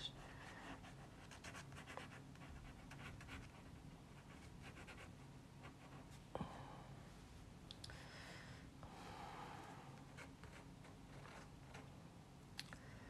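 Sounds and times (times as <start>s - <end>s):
pencil scratching on paper: 0.4s - 6.1s.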